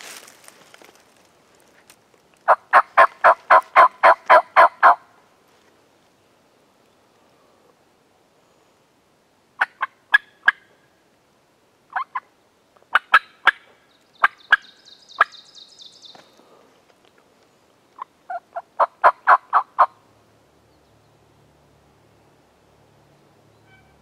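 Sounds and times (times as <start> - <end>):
turkey yelping: 2.5 - 5.0, 11.9 - 12.2, 18.0 - 20.0.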